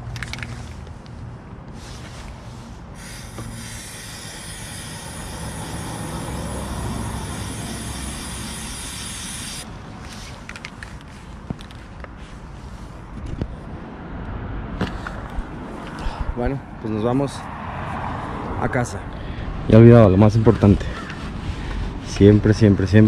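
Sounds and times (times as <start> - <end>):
pressurized gas hiss: 3.0 - 9.7.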